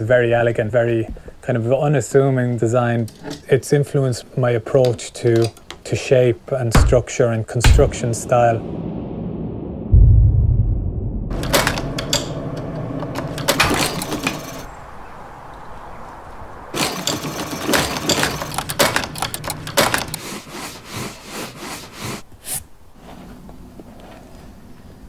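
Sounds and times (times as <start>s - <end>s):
sewing machine stitching leather: 13.1s - 14.7s, 16.8s - 22.2s.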